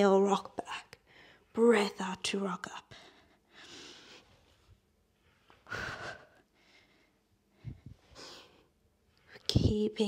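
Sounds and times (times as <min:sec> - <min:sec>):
woman breathing: 0:01.0 - 0:01.6, 0:02.9 - 0:08.8.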